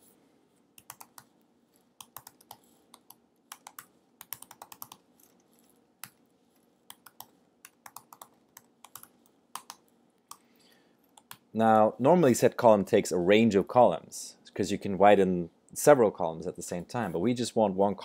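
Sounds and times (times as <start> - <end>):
typing on computer keyboard: 0.8 - 1.3, 2.0 - 5.0, 6.9 - 10.4.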